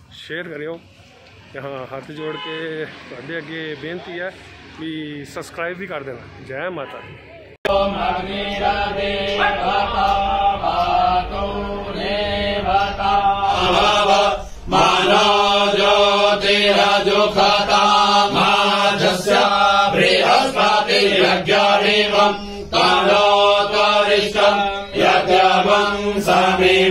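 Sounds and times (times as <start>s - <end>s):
mantra chanted to music: 7.7s - 26.9s.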